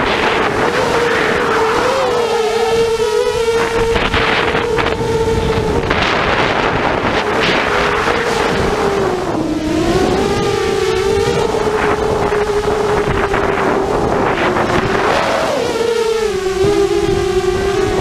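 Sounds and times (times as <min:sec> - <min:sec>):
drone motors whining: 0:00.0 - 0:18.0
wind rushing over microphone: 0:00.0 - 0:18.0.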